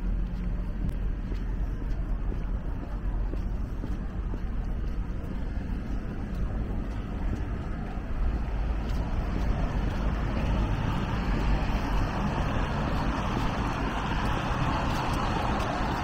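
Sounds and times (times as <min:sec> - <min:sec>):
traffic on wet roads: 0:00.0 - 0:16.0.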